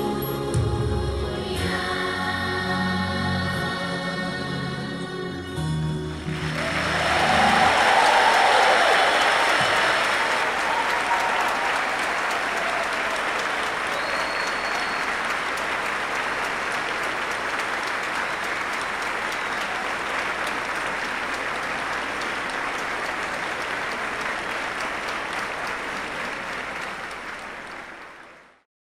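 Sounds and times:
audience applauding: 6.2 - 28.6.

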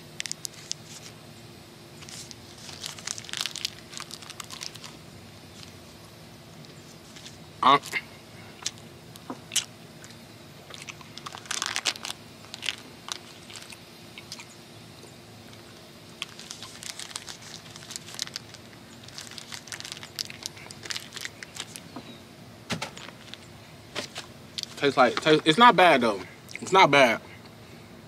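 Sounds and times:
wrapper crinkling: 0.2 - 1.1, 2.0 - 5.8, 10.8 - 14.4, 16.2 - 21.8, 23.0 - 24.8.

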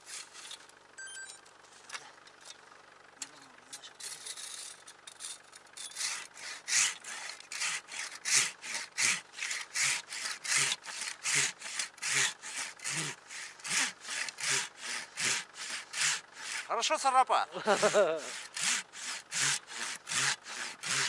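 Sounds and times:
hand saw cutting wood: 0.0 - 0.7, 5.8 - 17.0, 17.6 - 21.0.

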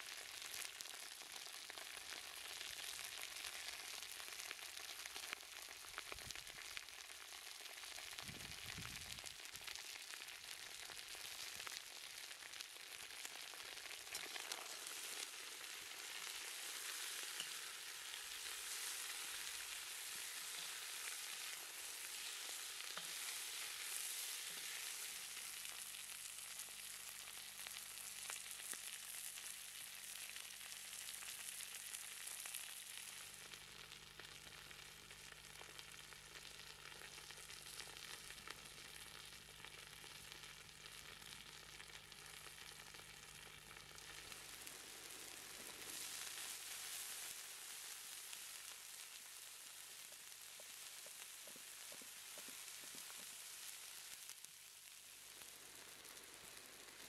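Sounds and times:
food sizzling in a wok: 0.0 - 57.0
food being stirred: 14.0 - 25.4, 50.6 - 53.6.

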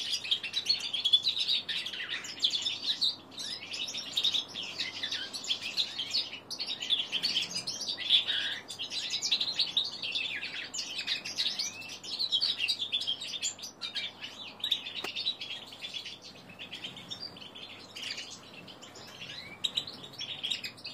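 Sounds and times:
bird singing twittering song: 0.0 - 20.9.

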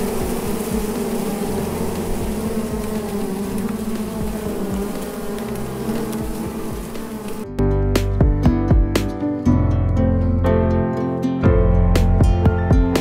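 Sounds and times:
bees buzzing: 0.0 - 7.6.

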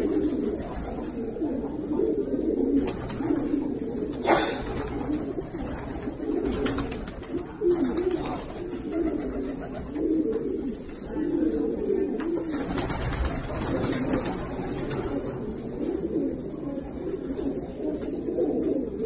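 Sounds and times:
pigeons cooing: 0.0 - 19.0
wing flaps: 2.8 - 10.2, 12.4 - 15.6.

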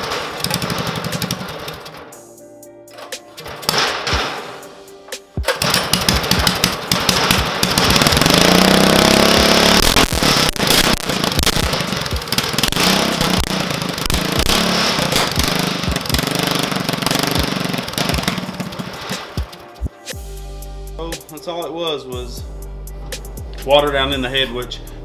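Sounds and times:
small engine revving: 5.6 - 19.2.

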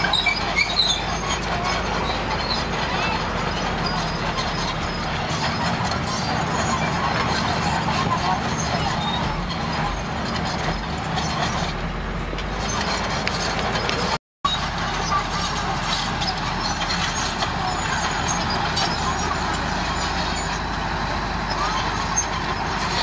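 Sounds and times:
diesel engine under load: 0.0 - 23.0
tracks clanking: 0.0 - 23.0
rocks grinding and scraping: 12.4 - 14.2.

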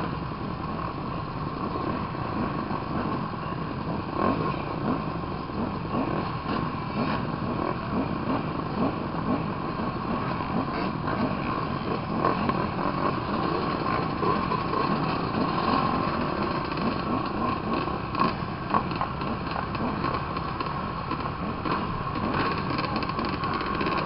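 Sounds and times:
motocross bikes idling: 0.0 - 24.0.

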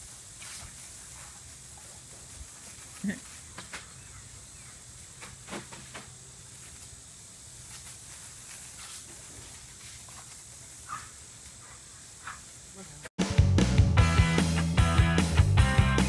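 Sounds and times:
garden hose spraying: 0.0 - 13.1.

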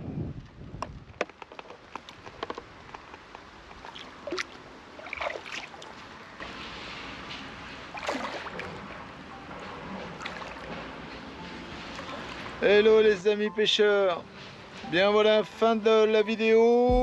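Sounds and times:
water sloshing and splashing: 3.0 - 12.6.

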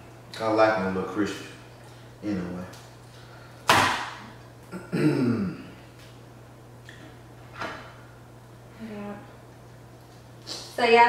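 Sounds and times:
person clearing throat: 4.7 - 5.8.

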